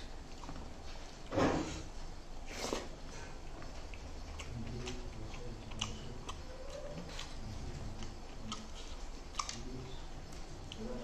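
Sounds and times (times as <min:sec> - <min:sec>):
chewing with wet mouth clicks: 0:00.3 - 0:00.6, 0:03.4 - 0:11.0.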